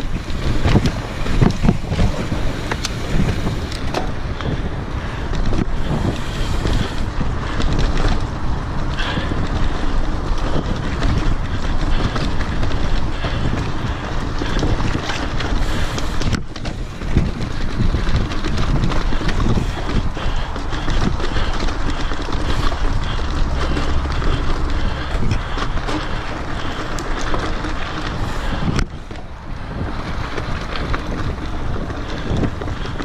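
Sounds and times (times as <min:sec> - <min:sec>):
bike rattling over bumps: 0:00.0 - 0:33.0
tyres rumbling on dirt: 0:00.0 - 0:33.0
wind buffeting microphone: 0:00.0 - 0:33.0.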